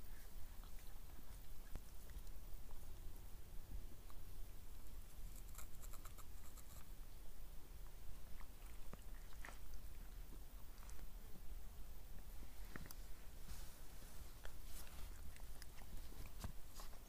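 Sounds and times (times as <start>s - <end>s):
puppies chewing and rustling: 0.0s - 6.9s, 7.7s - 17.0s.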